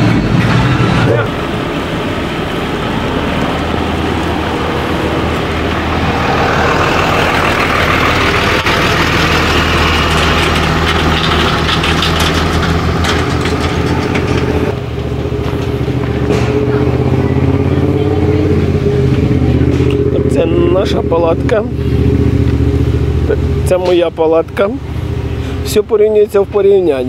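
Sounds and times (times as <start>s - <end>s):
rushing noise: 0.0s - 20.3s
engine idling: 0.0s - 27.0s.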